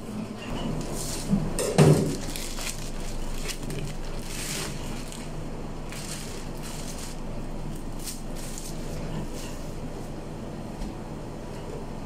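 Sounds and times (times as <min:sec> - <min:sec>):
steady low hum: 0:00.0 - 0:12.0
plastic bag crinkling: 0:02.0 - 0:08.9.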